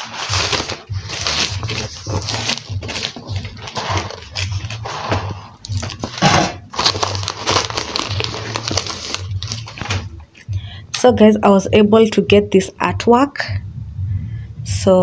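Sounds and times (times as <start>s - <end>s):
crinkling and rustling handling noise: 0.0s - 10.5s.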